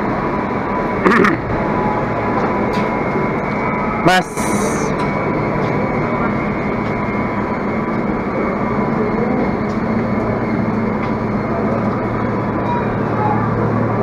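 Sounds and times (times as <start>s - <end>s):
diesel railcar idling: 0.0s - 14.0s.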